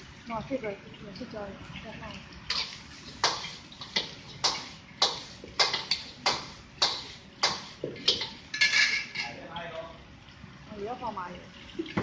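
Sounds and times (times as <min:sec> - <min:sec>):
metal ladle clacking against wok: 0:02.5 - 0:09.3.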